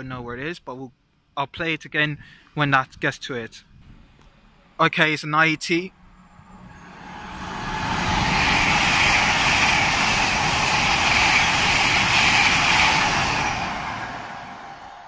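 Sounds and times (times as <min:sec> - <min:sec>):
train passing at speed: 0:05.9 - 0:15.0.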